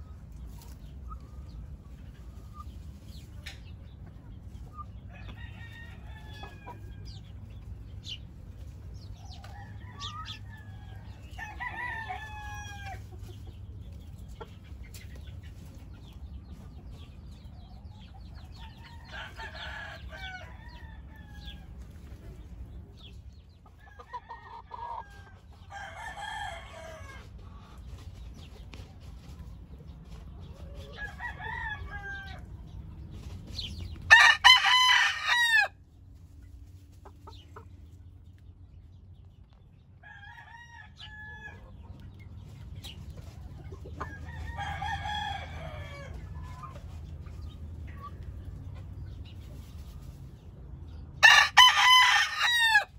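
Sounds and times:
roosters crowing: 5.0s - 8.2s, 9.2s - 13.3s, 18.5s - 22.0s, 23.4s - 27.9s, 30.5s - 35.9s, 39.9s - 41.9s, 43.5s - 46.8s, 50.9s - 52.9s.

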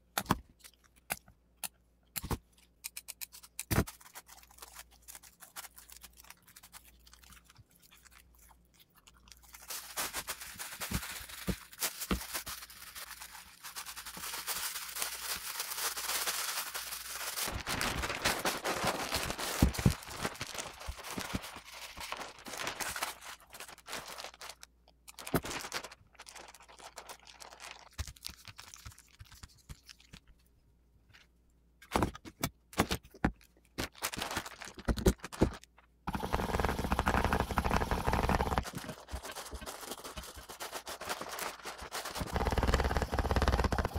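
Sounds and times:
plastic film and cloth crinkling: 9.4s - 30.2s, 33.8s - 43.8s.

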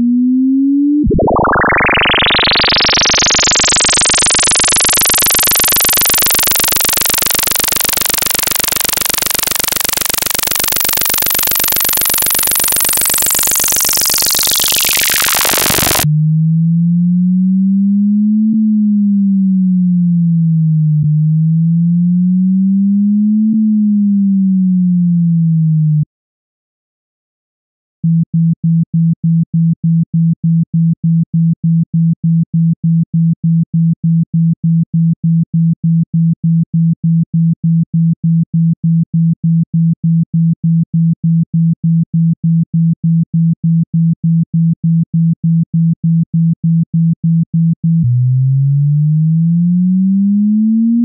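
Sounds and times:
low pure tone sliding in pitch: 0.0s - 25.8s, 48.0s - 51.0s
harsh buzzy synthesized tone: 1.0s - 16.1s.

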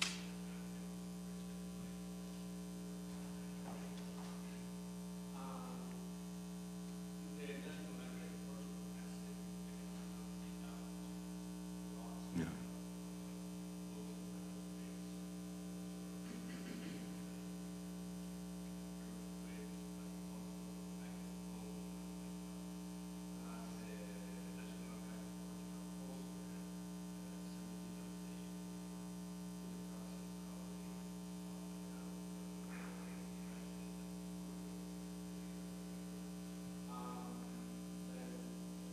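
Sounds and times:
electrical mains hum: 0.0s - 38.9s
faint voice: 11.9s - 13.0s.

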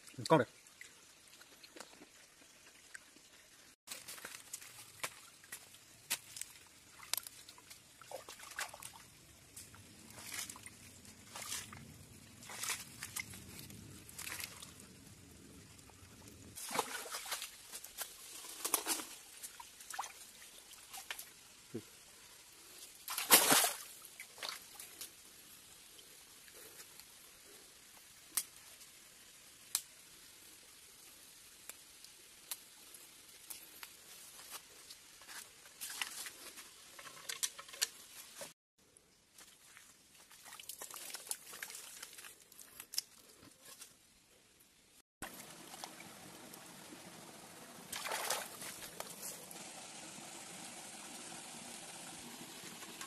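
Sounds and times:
water trickling: 0.0s - 26.7s, 45.2s - 53.0s
hands digging in wet mud: 9.6s - 14.8s, 39.5s - 43.9s.

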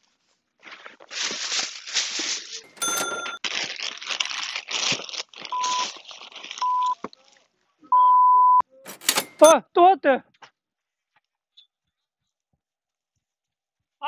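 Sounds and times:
brief ringing chime: 2.7s - 3.4s.

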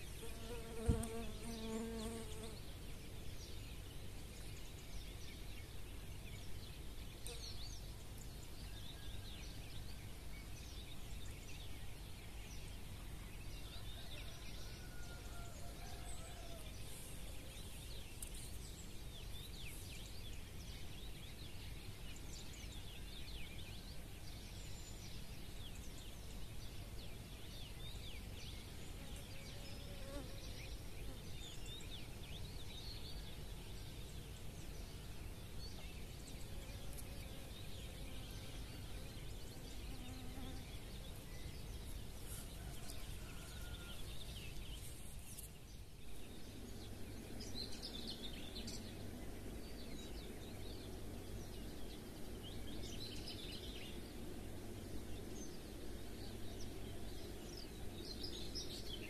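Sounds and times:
low background noise: 0.0s - 59.0s
songbirds chirping and trilling: 0.0s - 59.0s.

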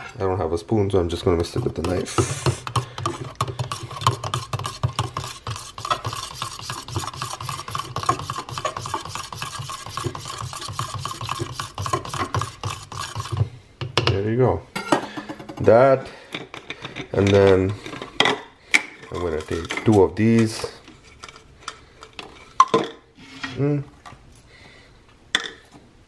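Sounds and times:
knife scraping plastic cup: 1.4s - 13.5s, 19.0s - 20.7s.

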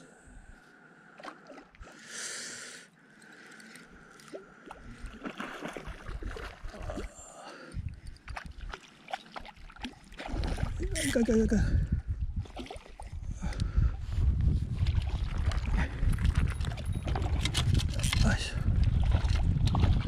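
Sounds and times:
water sloshing: 3.1s - 11.5s, 12.4s - 13.2s, 14.8s - 20.0s.

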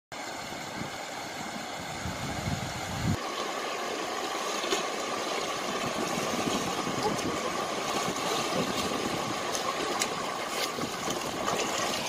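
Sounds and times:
river water rushing over rocks: 0.2s - 12.0s
sharp water splash: 3.0s - 12.0s.

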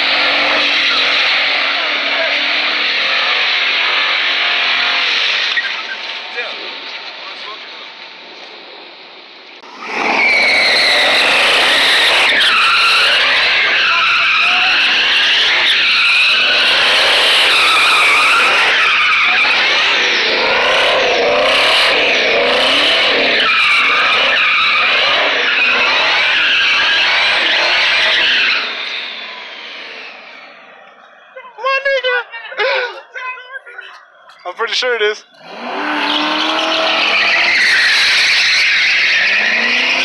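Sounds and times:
engine at high revs: 0.0s - 7.6s, 9.6s - 31.1s, 35.3s - 40.0s
tyres squealing: 9.8s - 30.4s, 35.2s - 40.0s.

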